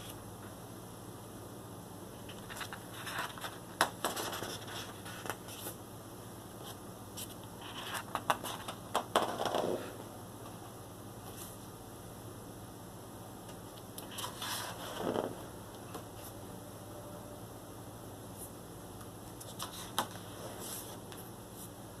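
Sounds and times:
book pages turning: 2.3s - 5.8s.

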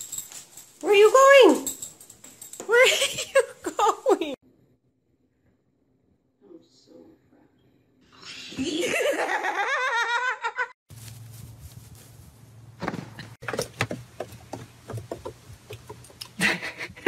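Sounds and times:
person laughing hard: 16.4s - 17.0s.

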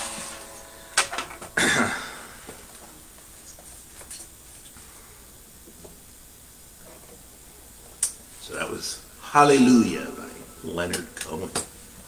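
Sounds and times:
brushing rustle: 0.0s - 0.8s.

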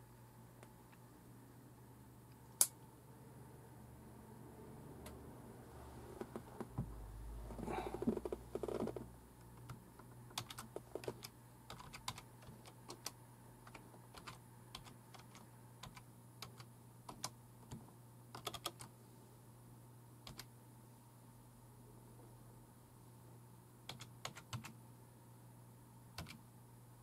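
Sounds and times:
faint steady hum: 0.0s - 27.0s
computer keyboard typing: 9.6s - 18.9s, 20.3s - 20.5s, 23.9s - 24.7s, 26.2s - 26.4s.

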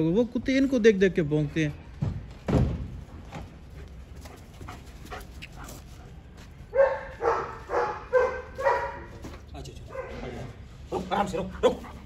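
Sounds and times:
dog barking: 6.7s - 9.2s, 9.9s - 11.0s.

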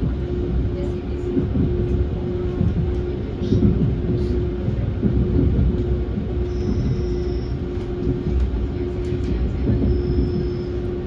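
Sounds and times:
train rumbling: 0.0s - 11.0s
faint high whine: 5.9s - 11.0s.

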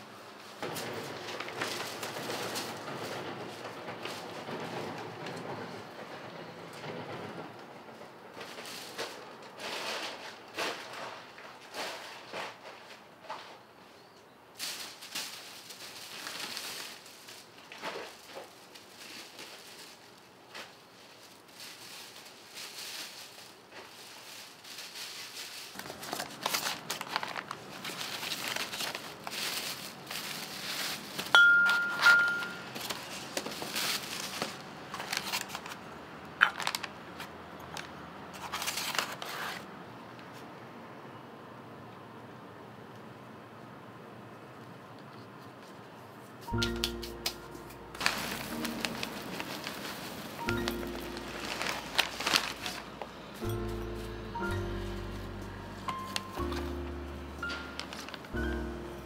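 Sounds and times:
plastic bag and paper rustling: 0.3s - 4.9s, 8.4s - 13.8s, 14.6s - 39.7s, 46.4s - 59.0s
short ringing clink: 31.4s - 32.6s.

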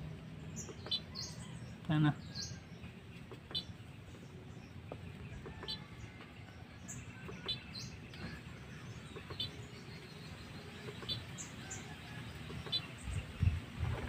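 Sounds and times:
birds chirping: 0.0s - 14.0s
outdoor background noise: 0.0s - 14.0s.

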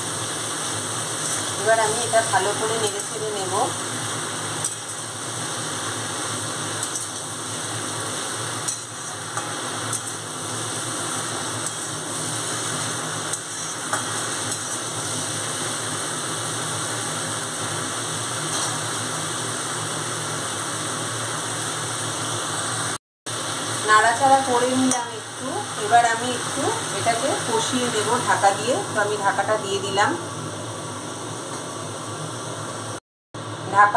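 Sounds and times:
vegetables sizzling in oil: 0.0s - 33.9s
metal spatula scraping: 8.6s - 10.2s, 11.6s - 15.3s, 18.5s - 18.9s.

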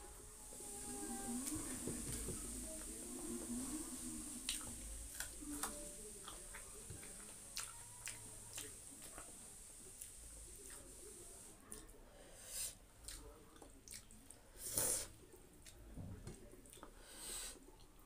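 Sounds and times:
person eating with wet clicks: 4.4s - 9.3s, 13.0s - 14.2s, 15.6s - 15.8s.

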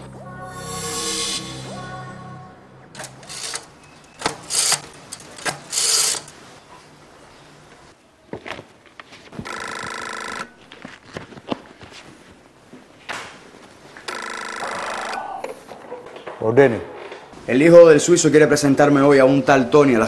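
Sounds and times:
rotary phone dial ratcheting: 3.0s - 6.3s
telephone ringing: 3.0s - 6.3s, 9.4s - 10.6s, 14.1s - 15.3s.

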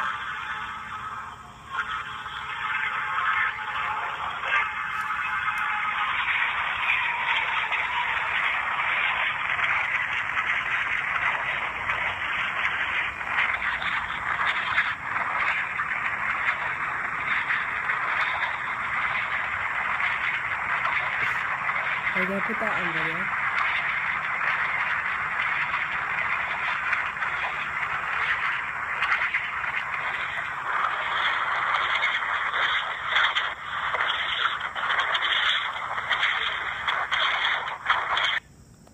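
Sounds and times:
freight train through phone speaker: 11.2s - 23.6s
tinny train recording on phone speaker: 21.1s - 23.6s.

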